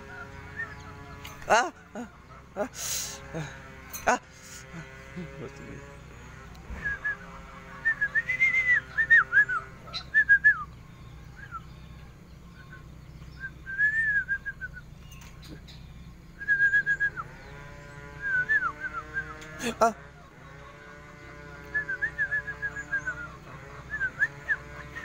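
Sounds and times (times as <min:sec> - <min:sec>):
bird whistling: 0:00.1 - 0:01.0, 0:06.7 - 0:17.4, 0:18.2 - 0:19.4, 0:21.7 - 0:25.0.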